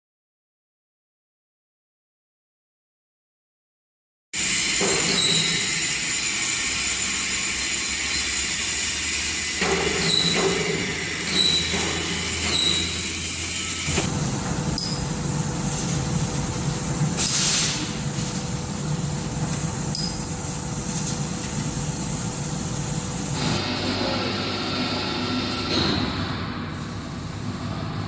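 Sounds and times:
welding equipment hum: 4.4 - 28.0
welding hiss: 15.6 - 18.4.

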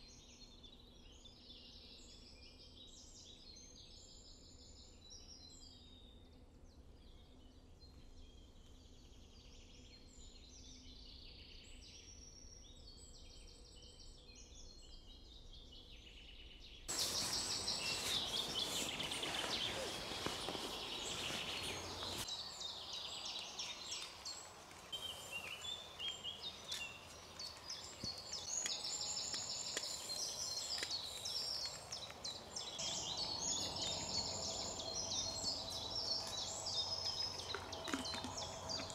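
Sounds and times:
songbirds chirping: 0.0 - 38.9
broad rushing noise: 16.9 - 22.3.

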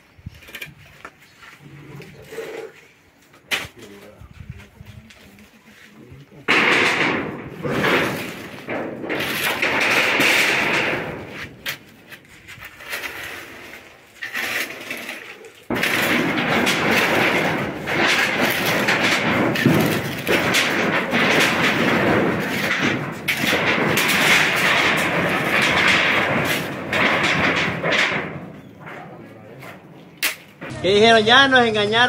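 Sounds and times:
spade crunching concrete: 5.8 - 30.9
shovels scraping wet concrete: 7.8 - 25.6.

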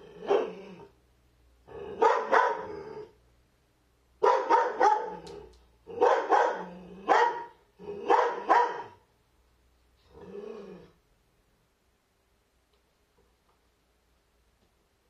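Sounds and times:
dog barking: 0.2 - 0.6, 1.9 - 2.8, 4.2 - 5.3, 5.9 - 9.0.

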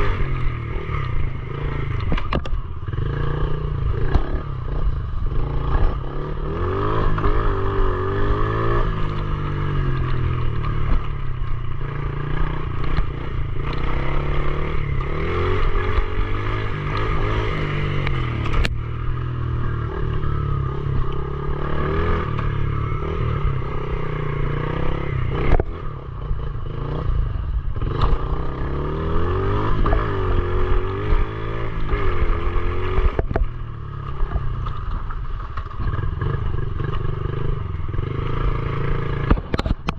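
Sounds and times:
small motorbike engine revving: 19.6 - 34.8.

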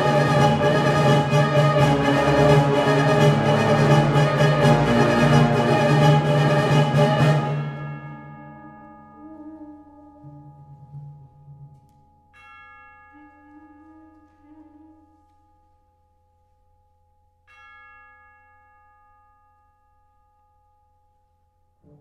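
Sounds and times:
soft held low brass notes: 0.0 - 12.1, 13.1 - 15.7
tubular bell strokes: 0.0 - 16.0.

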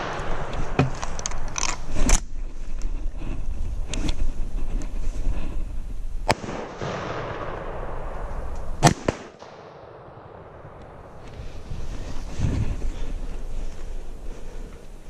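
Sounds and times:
rifle shots with echo: 6.2 - 11.2.

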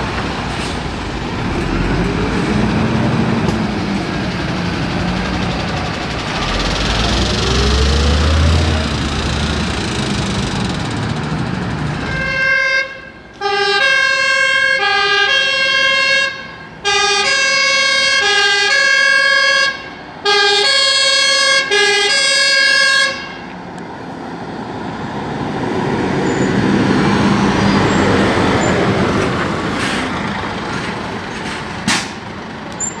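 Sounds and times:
diesel engines of fire trucks: 0.0 - 33.0
fire engine two-tone siren: 12.0 - 23.5.

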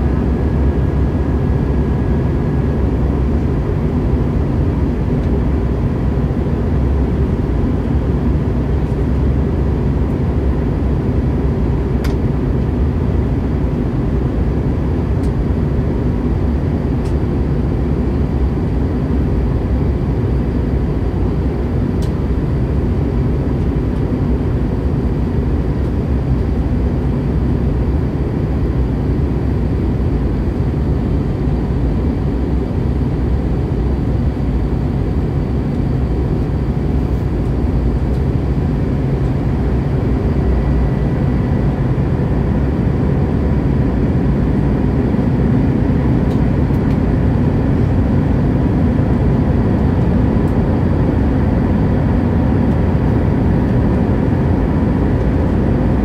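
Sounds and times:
faint constant whine: 0.0 - 56.0
jet engine cabin rumble: 0.0 - 56.0.

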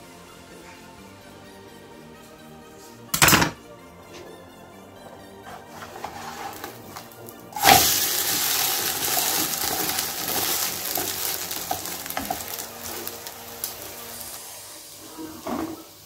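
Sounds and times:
food sizzling in hot oil: 6.0 - 16.0.

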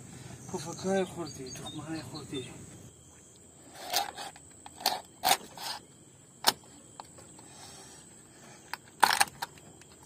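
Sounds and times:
high insect trill: 0.0 - 10.0.

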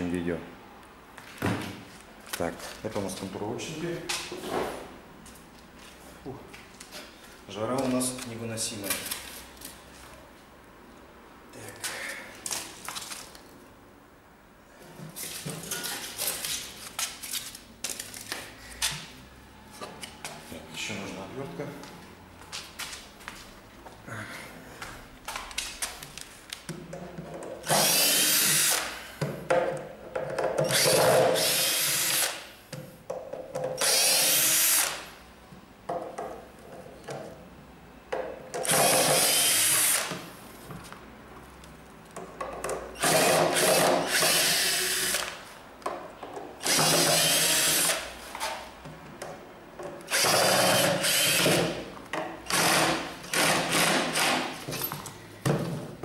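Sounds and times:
cordless drill whine: 33.8 - 35.0, 38.8 - 40.1, 43.0 - 45.3, 46.6 - 48.0, 50.1 - 51.6.

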